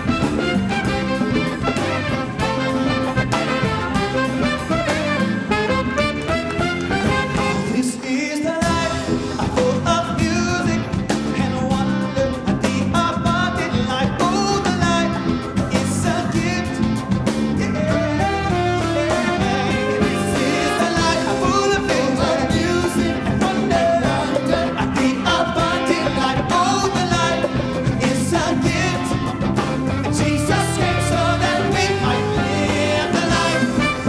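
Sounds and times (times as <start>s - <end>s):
bass guitar: 0.0s - 8.0s, 8.6s - 34.0s
drum kit: 0.0s - 8.0s, 8.6s - 34.0s
horn section: 0.0s - 9.4s, 17.6s - 34.0s
keyboard: 0.0s - 34.0s
lead and backing vocals: 0.0s - 34.0s.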